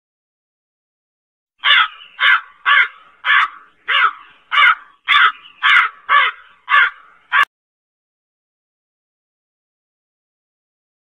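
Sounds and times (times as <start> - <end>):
crow cawing: 1.6 - 7.5.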